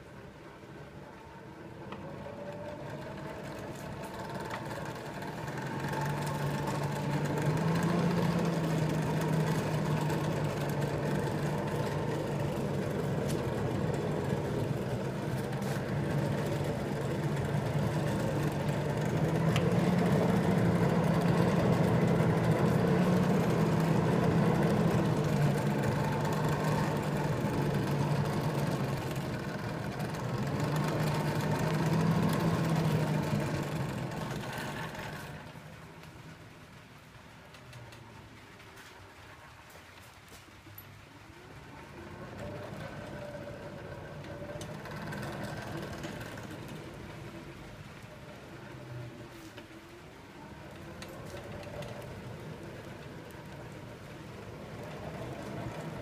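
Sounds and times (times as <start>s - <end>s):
electric blower humming: 2.4s - 35.6s.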